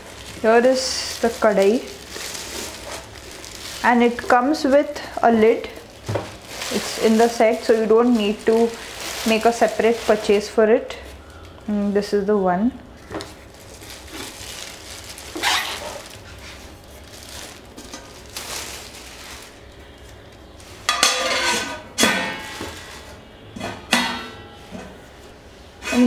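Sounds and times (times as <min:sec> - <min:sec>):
metal pot and lid clinking: 0:20.9 - 0:22.8.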